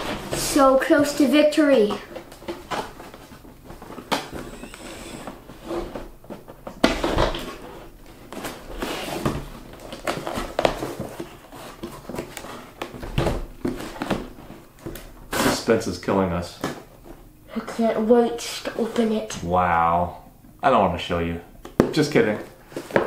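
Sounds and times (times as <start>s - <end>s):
cardboard box scraping and rustling: 7.4s - 12.8s.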